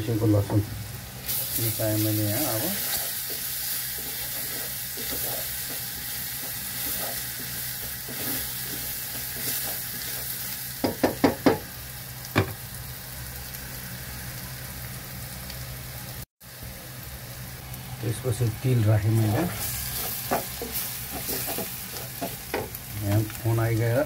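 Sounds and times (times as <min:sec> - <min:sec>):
garlic frying in oil: 0:00.0 - 0:24.0.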